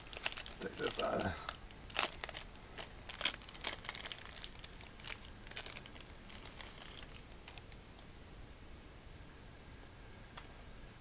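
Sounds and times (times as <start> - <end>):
plastic wrapping crinkling: 0.0 - 7.8.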